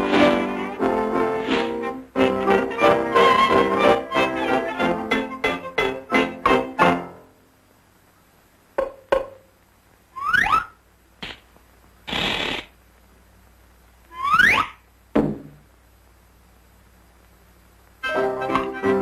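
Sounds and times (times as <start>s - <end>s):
short hiss: 11.2s - 12.8s
cartoon knocks: 15.1s - 15.6s.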